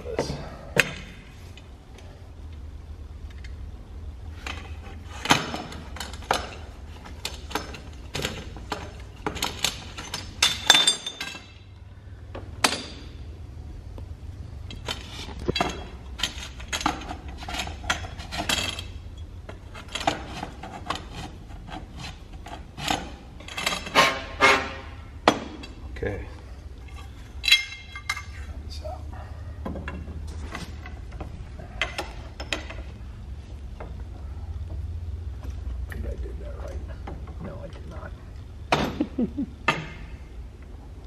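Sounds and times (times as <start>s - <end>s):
steady low hum: 0.0s - 41.0s
hand tools clinking on metal pipe: 27.4s - 28.4s.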